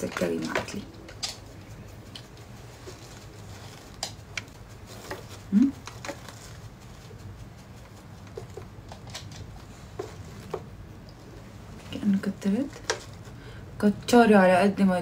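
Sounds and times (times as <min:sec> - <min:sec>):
blush brush on cheek: 0:00.1 - 0:08.9.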